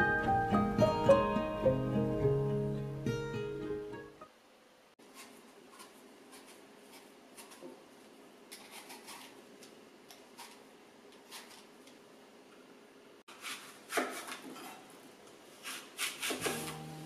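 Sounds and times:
peeler scraping apple skin: 8.5 - 9.4, 10.1 - 12.0, 15.6 - 16.9.

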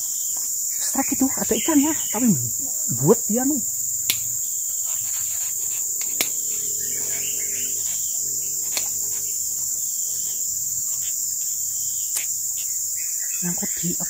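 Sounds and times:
forest insects chorus: 0.0 - 14.0
sharp clicks: 4.0 - 4.3.

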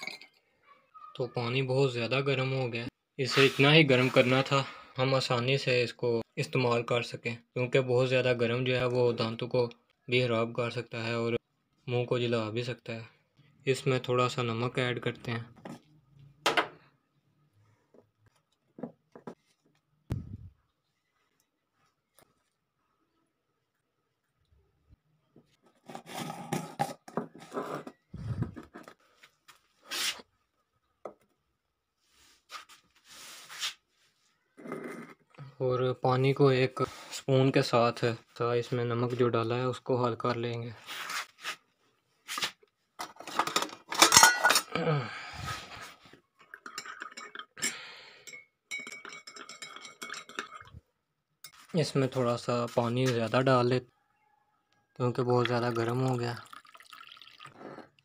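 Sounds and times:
spoon clinking in ceramic mug: 0.0 - 0.4, 46.5 - 50.7
plastic jars clicking and scraping: 25.5 - 29.1.

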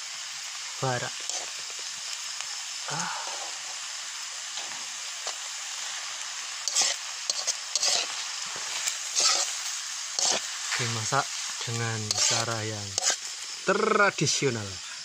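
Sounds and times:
mushrooms sizzling in a wok: 0.0 - 15.0
metal spatula scraping pan: 6.7 - 8.2, 8.8 - 9.6, 10.2 - 10.4, 12.1 - 12.4, 13.0 - 13.2.

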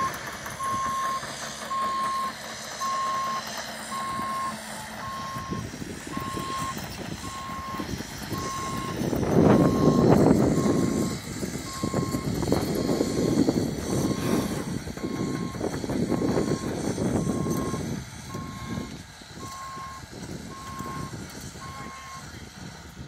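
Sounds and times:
travel alarm beeping: 0.0 - 7.8, 8.4 - 11.1, 16.2 - 22.2
diesel engine running: 0.0 - 23.0.

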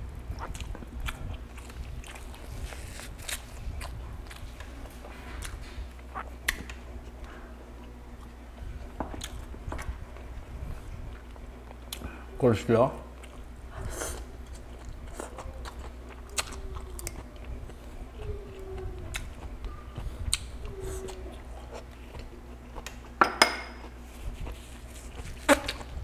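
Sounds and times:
chewing and crunching cabbage: 0.2 - 8.4, 13.2 - 23.2, 23.8 - 26.0.

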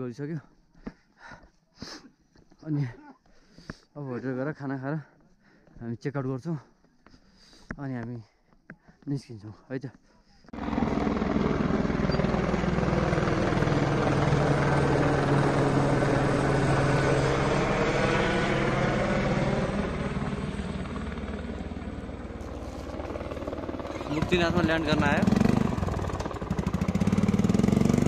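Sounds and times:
helicopter flying overhead: 10.5 - 28.0.

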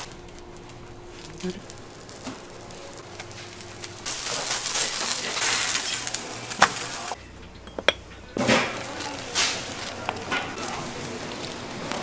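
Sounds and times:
glass or crockery clinks: 7.6 - 8.2.

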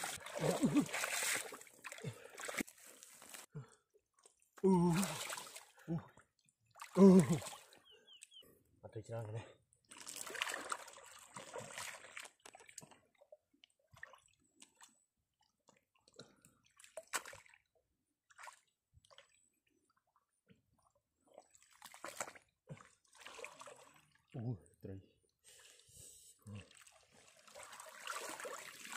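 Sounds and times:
pond water splashing: 0.0 - 3.5, 4.6 - 6.0, 6.6 - 7.9, 9.8 - 13.2, 13.9 - 14.9, 16.6 - 17.6, 18.2 - 19.6, 20.8 - 24.2, 26.5 - 28.9.

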